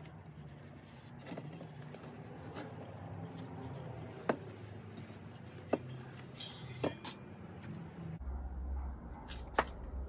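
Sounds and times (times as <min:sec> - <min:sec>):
muffler packing rustling and scraping: 0:00.0 - 0:06.3.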